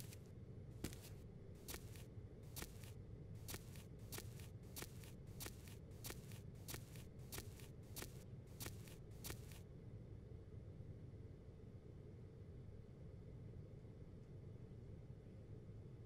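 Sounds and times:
soft quick scuffing footsteps: 0.0 - 0.2, 0.8 - 9.6.

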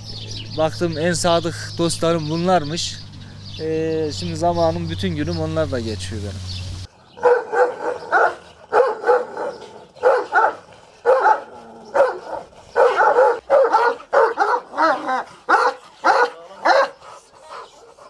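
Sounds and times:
dogs barking: 7.2 - 18.0.

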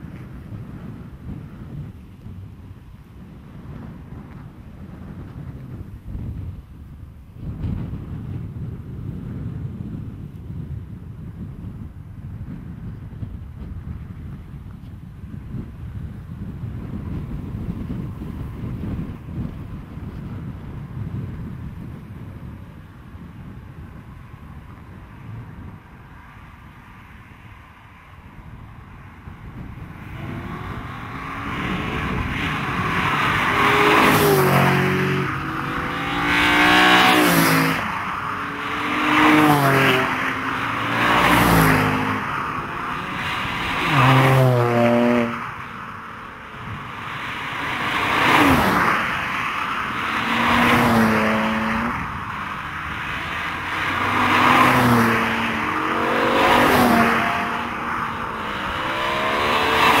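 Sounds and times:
cars driving past revving: 29.0 - 60.0.

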